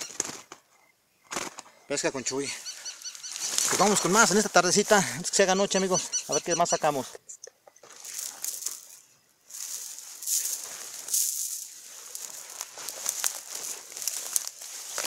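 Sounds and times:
dry rustling and crackling: 1.4s - 5.2s, 7.8s - 15.0s.

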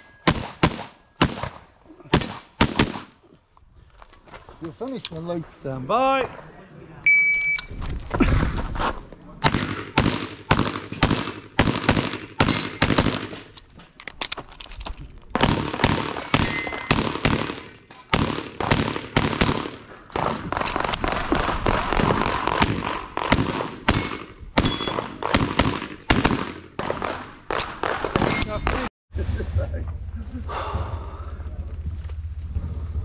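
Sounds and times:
pistol shots: 0.3s - 3.1s, 9.4s - 13.4s, 15.4s - 28.8s.

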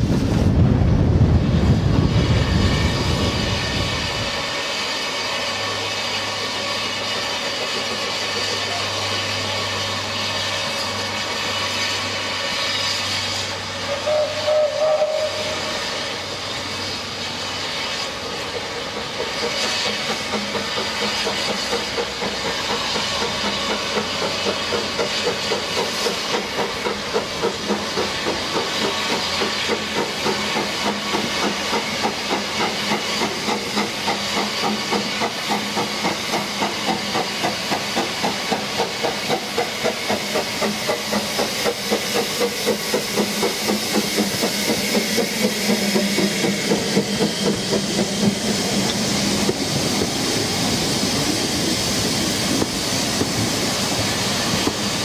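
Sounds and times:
steam locomotive chuffing: 0.0s - 55.0s
steam locomotive hissing: 0.0s - 55.0s
steam whistle: 8.2s - 16.3s.

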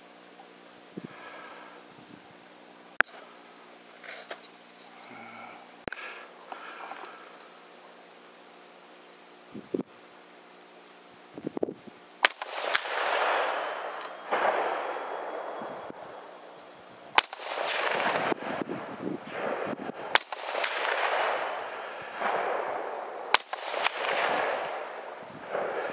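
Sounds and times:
rifle shots with echo: 12.2s - 25.9s.

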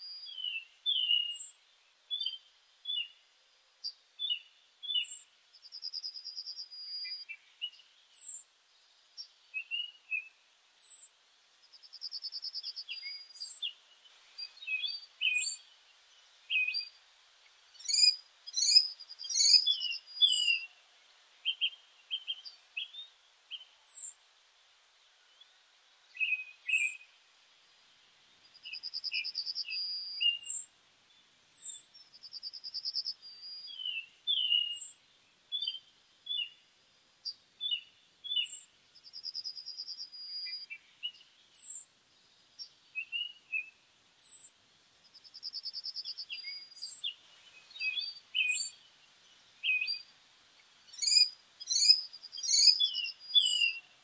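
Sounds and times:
small birds chirping: 0.0s - 54.0s
bird trill: 0.2s - 1.6s, 17.8s - 20.8s, 28.6s - 30.7s, 32.4s - 35.0s, 37.7s - 41.8s, 43.0s - 44.5s, 45.4s - 48.8s, 50.9s - 53.9s.

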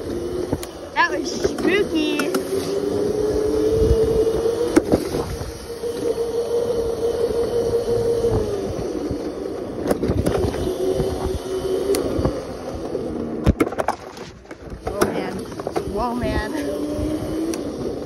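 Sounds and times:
electric motor whining: 0.0s - 18.0s
wind and road rumble: 0.0s - 18.0s.

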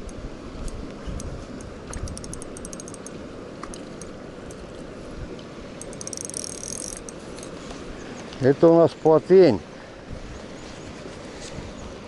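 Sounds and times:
fishing reel ticking: 0.0s - 4.7s, 5.8s - 7.6s.

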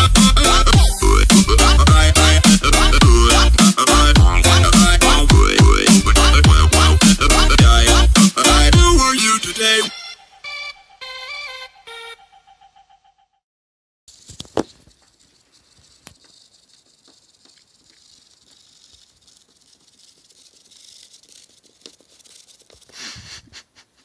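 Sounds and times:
claws pattering on hard floor: 14.1s - 23.2s
rustling: 14.1s - 24.0s.

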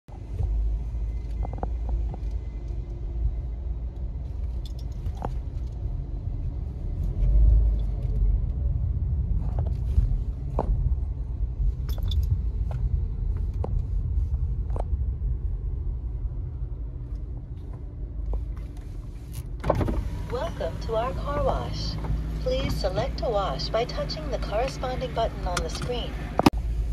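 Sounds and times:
car engine and tyres rumbling: 0.1s - 26.9s.

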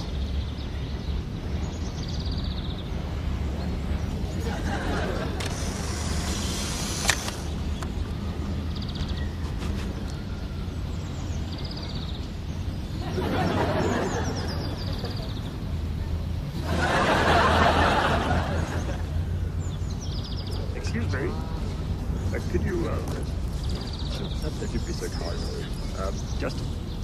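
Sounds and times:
birds chirping: 0.0s - 27.0s
sharp click: 6.3s - 7.9s.

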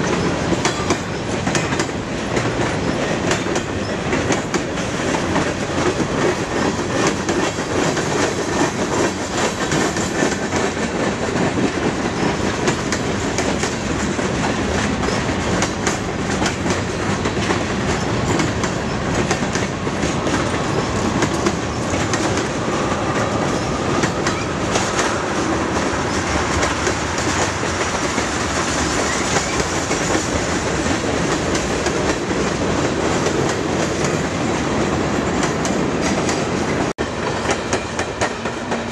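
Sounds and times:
freight train wheels clattering: 0.0s - 38.9s.

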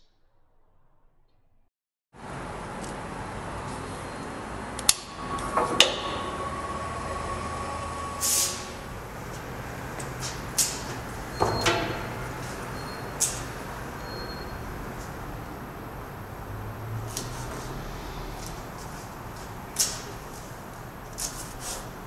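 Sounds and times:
vacuum bed rushing hum: 2.2s - 22.0s.

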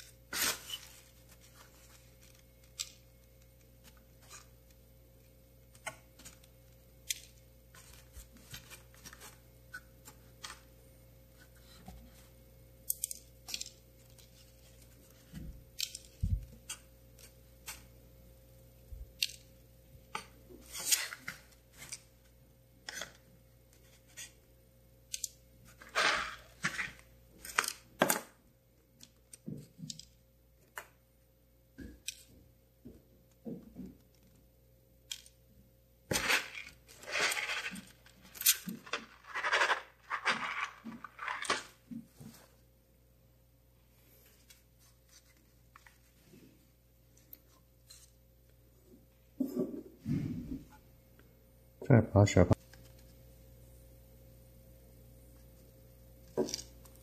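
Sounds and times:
paper crinkling and rustling: 36.1s - 42.5s.

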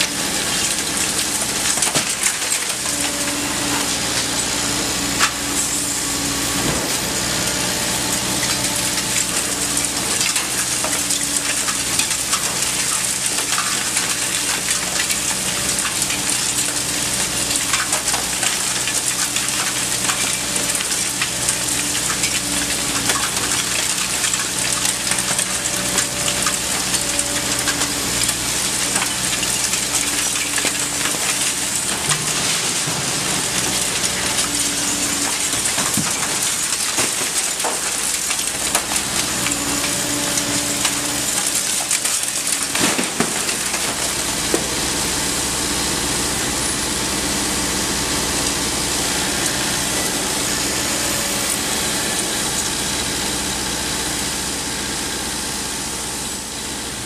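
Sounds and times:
excavator diesel engine running: 0.0s - 57.0s
debris crackling and clattering: 0.1s - 4.4s, 8.3s - 45.0s.

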